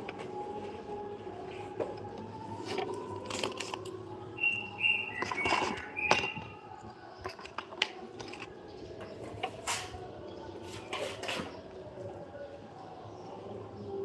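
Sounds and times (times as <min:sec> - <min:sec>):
tools knocking and clinking: 0:05.2 - 0:06.6, 0:07.2 - 0:09.6.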